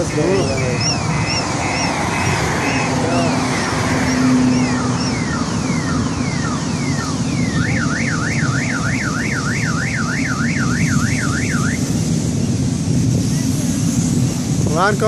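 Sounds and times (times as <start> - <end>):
car alarm warbling: 0.0 - 12.0.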